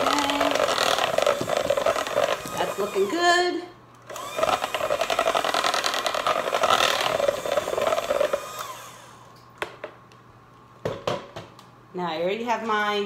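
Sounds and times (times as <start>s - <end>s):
electric hand mixer running: 0.0s - 9.3s.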